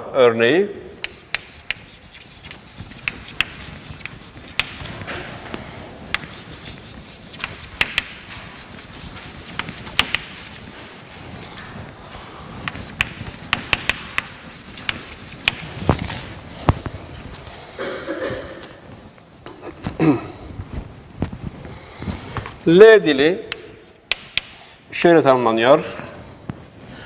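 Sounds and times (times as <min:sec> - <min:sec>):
chalk scratching on blackboard: 0:01.0 - 0:05.1, 0:06.1 - 0:11.6, 0:12.5 - 0:16.6, 0:23.2 - 0:24.8
chalk tapping on blackboard: 0:01.0 - 0:05.1, 0:06.1 - 0:11.4, 0:12.6 - 0:16.4, 0:23.4 - 0:24.8.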